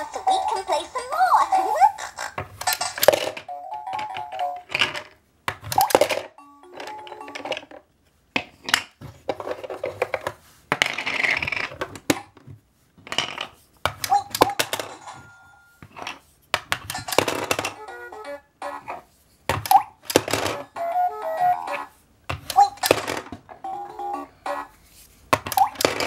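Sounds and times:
plastic coins clattering into toy: 0:02.6 - 0:07.8, 0:14.3 - 0:16.2, 0:16.8 - 0:17.8, 0:20.1 - 0:20.8, 0:22.6 - 0:23.4.

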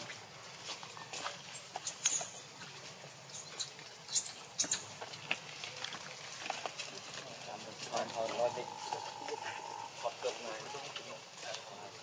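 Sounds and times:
baby monkey squealing: 0:01.3 - 0:02.4, 0:03.3 - 0:04.9.

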